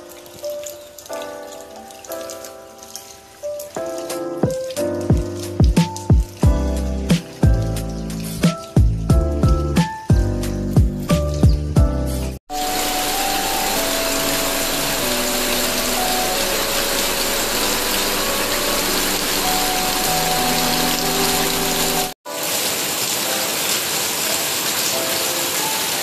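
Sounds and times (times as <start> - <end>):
heavy rain pouring: 0.0 - 26.0.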